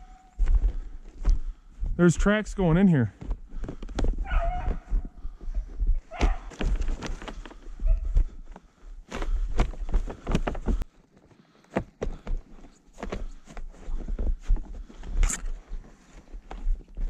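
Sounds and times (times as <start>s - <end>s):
footsteps crunching through snow: 0.0s - 8.4s.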